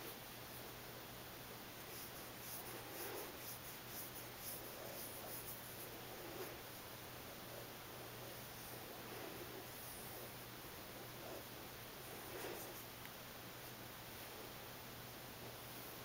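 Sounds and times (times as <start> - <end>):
low electrical hum: 0.0 - 16.0
hand petting fur rustling: 1.8 - 6.9, 7.5 - 14.6.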